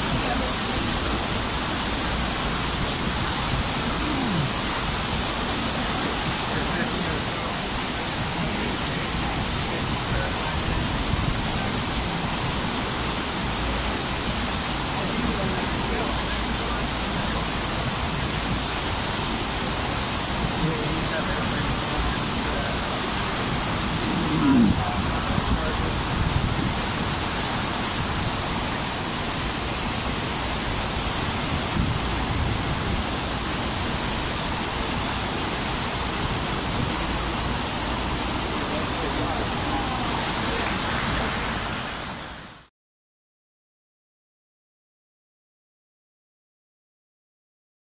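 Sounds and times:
water rushing: 0.0s - 42.7s.

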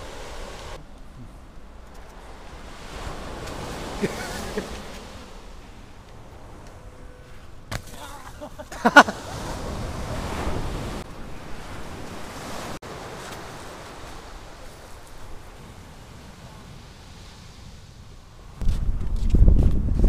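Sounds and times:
small waves breaking on sand: 0.0s - 6.6s, 7.2s - 18.6s
wind on microphone: 9.3s - 20.0s.

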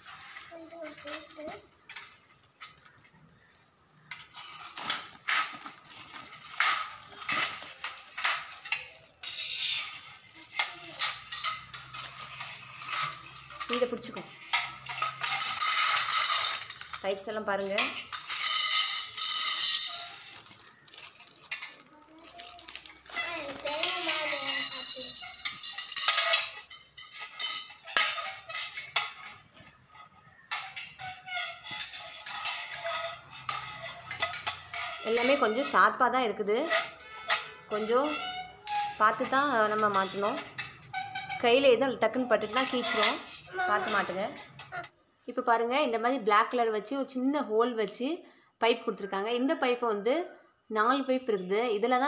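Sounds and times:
steel tubes clinking: 0.0s - 45.0s
plastic wrap crinkling and tearing: 4.4s - 14.0s, 19.2s - 24.4s.

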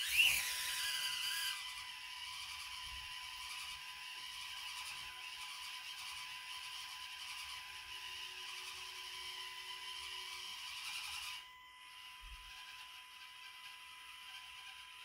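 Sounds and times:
small electric motor whining: 0.0s - 15.0s.

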